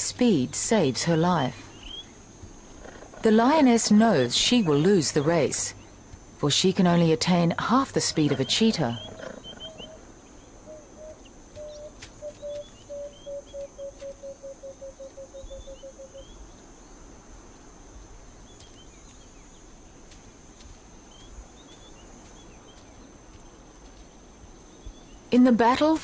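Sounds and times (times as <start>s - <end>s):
high insect drone: 0.0s - 26.0s
small birds chirping: 1.4s - 25.4s
bird hooting low notes: 8.0s - 16.5s.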